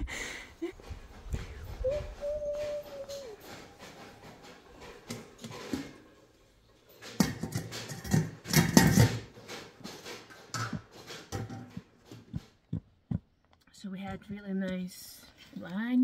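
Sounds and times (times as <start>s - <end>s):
metal lids clattering on pots: 7.0s - 11.7s.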